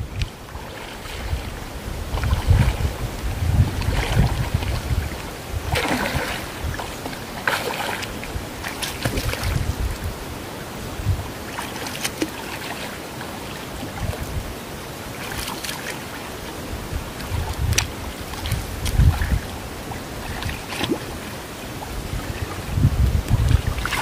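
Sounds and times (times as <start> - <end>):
wind on microphone: 0.0 - 11.6, 13.8 - 15.5, 16.4 - 24.0
fish splashing in water: 3.7 - 9.7, 11.5 - 13.0, 15.1 - 16.2, 20.1 - 21.4, 23.4 - 24.0.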